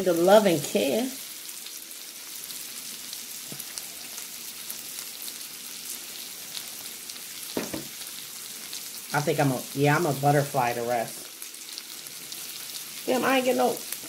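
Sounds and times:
food sizzling on grill pan: 0:00.0 - 0:14.0
soft knock: 0:07.6 - 0:07.9.

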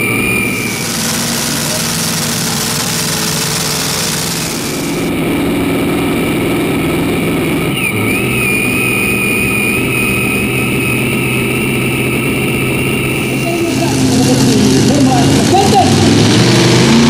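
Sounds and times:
high steady whine: 0:00.0 - 0:17.0
tractor engine idling: 0:00.0 - 0:17.0.

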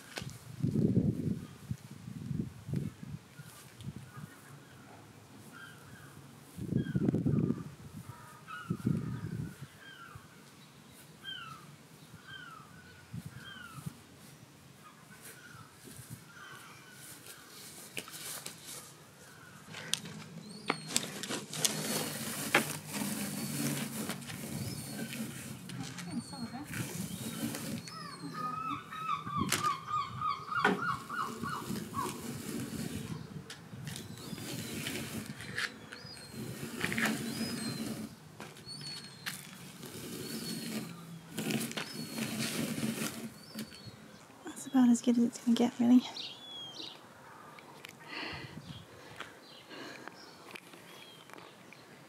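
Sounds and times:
leaf rake scraping grass: 0:20.0 - 0:28.7, 0:30.8 - 0:43.9.

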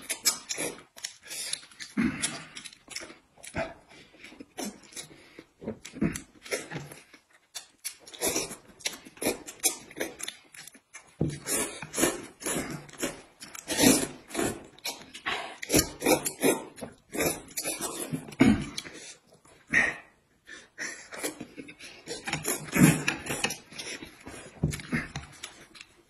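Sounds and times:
chewing: 0:00.0 - 0:26.0
people slurping noodles: 0:11.4 - 0:25.4.

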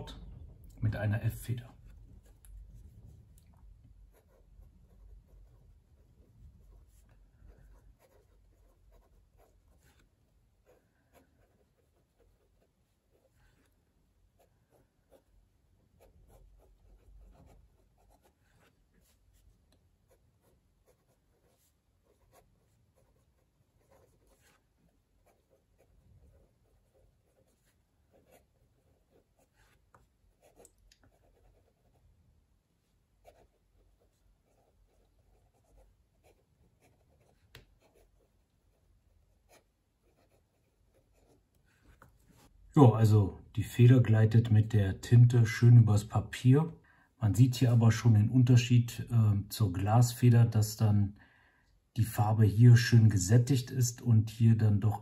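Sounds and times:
fountain pen scratching on paper: 0:04.1 - 0:13.8, 0:16.0 - 0:32.0, 0:33.2 - 0:42.5.

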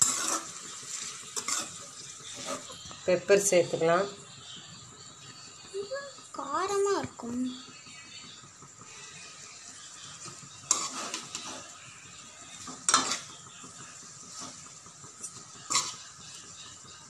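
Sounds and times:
metal spatula scraping a pan: 0:00.0 - 0:03.8, 0:08.9 - 0:16.4
low sizzle: 0:00.0 - 0:17.0.

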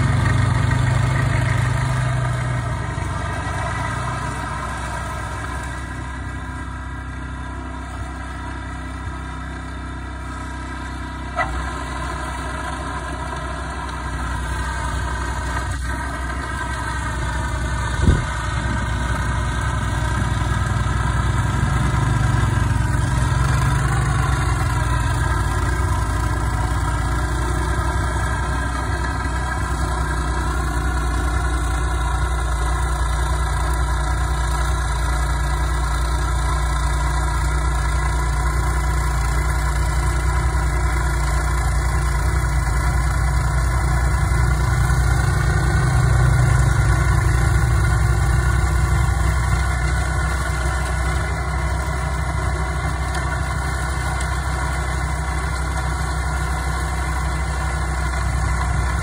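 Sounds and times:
vehicle engine running: 0:00.0 - 0:59.0.

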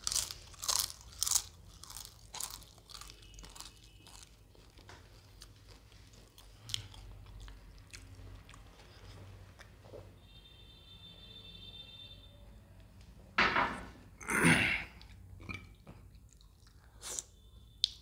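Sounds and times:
crunching bites of crisp food: 0:00.0 - 0:09.7
soft chewing: 0:00.0 - 0:10.1, 0:14.9 - 0:18.0.

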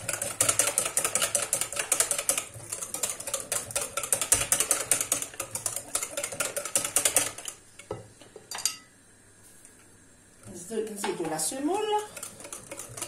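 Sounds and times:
whisk clicking against glass bowl: 0:00.0 - 0:07.6, 0:12.0 - 0:13.0.

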